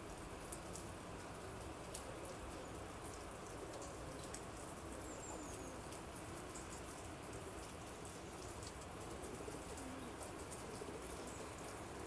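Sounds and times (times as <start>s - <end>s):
faint outdoor hiss: 0.0s - 12.0s
light ticks: 0.5s - 2.1s, 3.0s - 4.7s, 5.9s - 11.8s.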